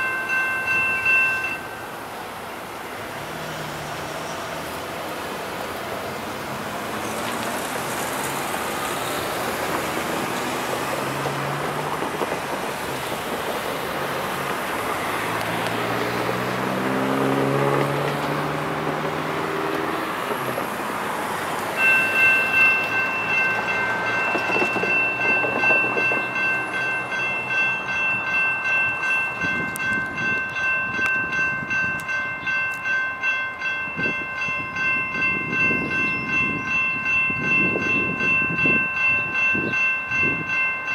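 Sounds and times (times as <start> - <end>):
railroad crossing bell ringing: 0.0 - 40.9
road traffic passing: 0.0 - 40.9
vehicle engine accelerating: 14.0 - 21.6.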